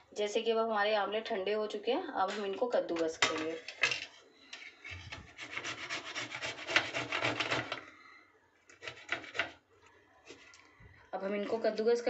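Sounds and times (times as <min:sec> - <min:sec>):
grating on a box grater: 0:05.4 - 0:07.8, 0:08.8 - 0:09.6.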